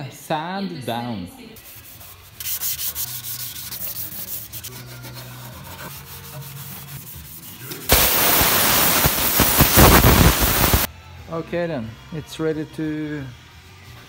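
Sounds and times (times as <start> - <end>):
hand sanding metal: 1.6 - 10.8
compressed air tool hissing: 7.9 - 10.9.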